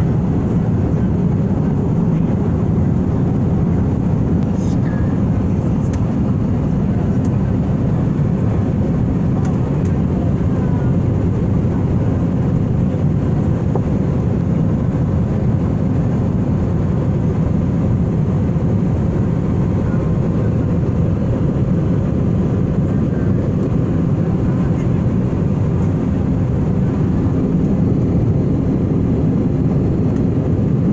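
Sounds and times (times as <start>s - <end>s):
airliner cabin engine and airflow rush: 0.0s - 30.9s.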